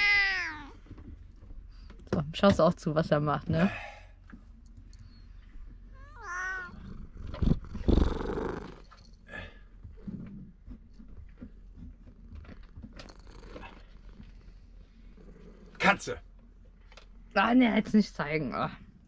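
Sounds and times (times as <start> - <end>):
cat meowing: 0.0 - 0.8, 6.0 - 6.9.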